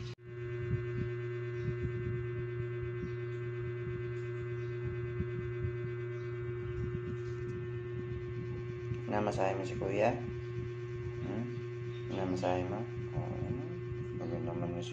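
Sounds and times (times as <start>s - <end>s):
electrical hum: 0.0s - 14.9s.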